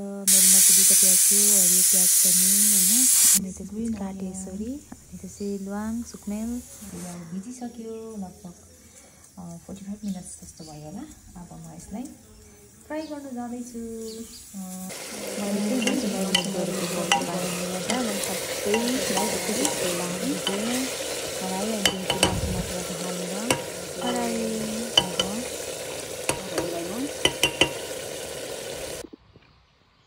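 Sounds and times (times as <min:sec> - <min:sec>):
curry sizzling in a pot: 0:00.3 - 0:03.4, 0:05.3 - 0:29.1
ladle knocking and scraping a pot: 0:15.0 - 0:28.3.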